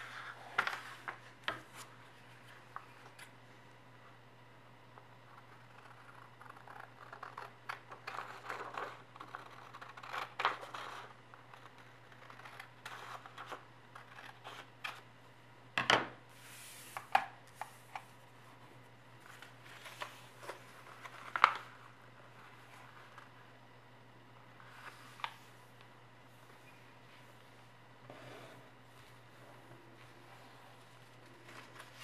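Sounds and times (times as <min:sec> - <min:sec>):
steady low hum: 0:00.0 - 0:32.0
paper rustling: 0:30.0 - 0:32.0.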